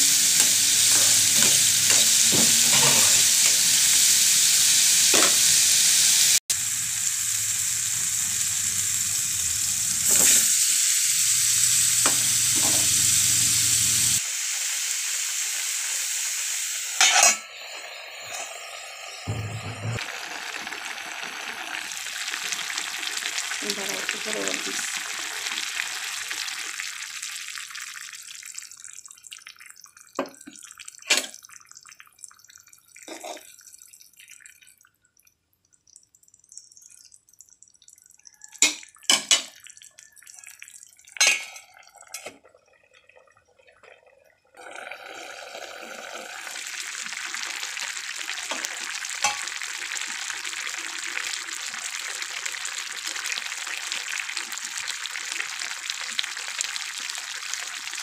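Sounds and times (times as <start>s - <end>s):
water hissing in hot pan: 0.0s - 28.7s, 44.6s - 58.0s
curry simmering with hiss: 6.3s - 29.3s.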